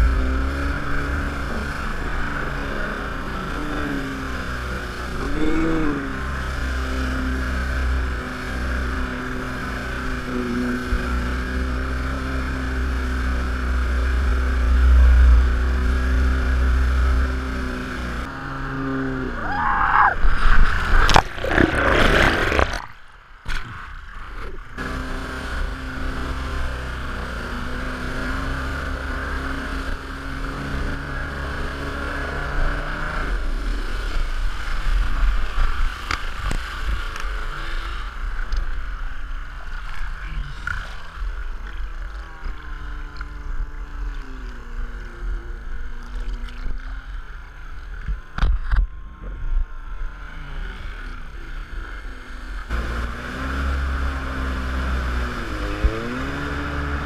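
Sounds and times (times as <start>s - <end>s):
jet ski engine: 0.0s - 57.0s
water and wind wash: 0.0s - 57.0s
loud splash: 20.2s - 23.0s.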